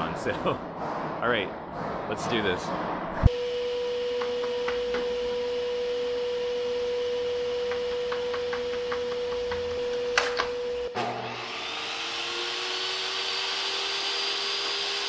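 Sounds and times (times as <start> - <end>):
steady hum: 0.0 - 11.0
sharp knocks: 7.7 - 10.5.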